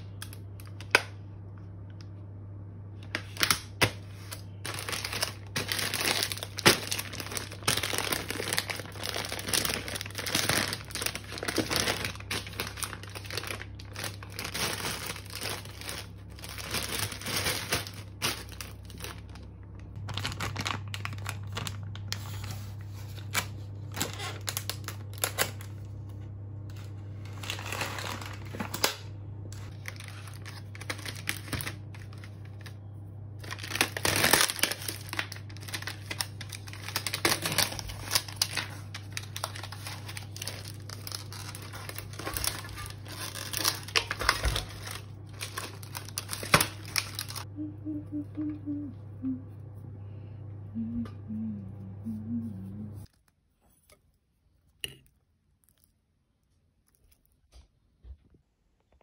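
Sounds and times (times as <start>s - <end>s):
steady low hum: 0.0s - 58.9s
plastic packaging crinkling: 3.0s - 25.9s, 26.7s - 47.5s.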